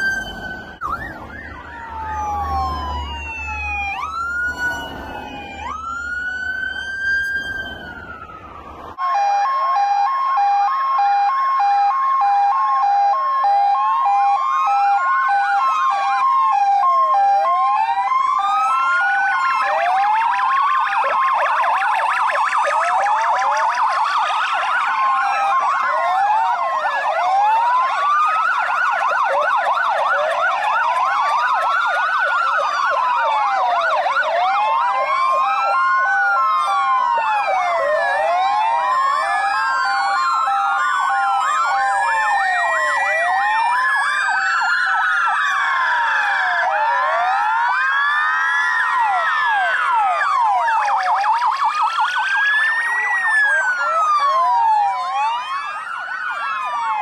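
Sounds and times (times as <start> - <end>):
two-note hi-lo siren: 0.0 - 17.6
fast siren yelp: 0.0 - 57.0
siren wail: 0.0 - 57.0.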